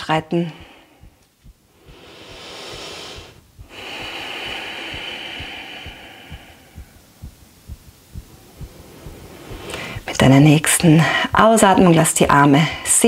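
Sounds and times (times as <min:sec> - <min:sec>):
soft low thumps: 0:00.0 - 0:13.0
woman breathing deeply: 0:00.4 - 0:10.1.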